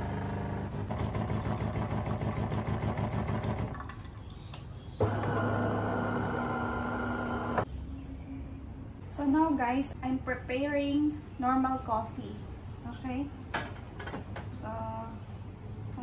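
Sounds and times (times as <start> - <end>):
coffee machine pump humming: 5.0 - 7.6.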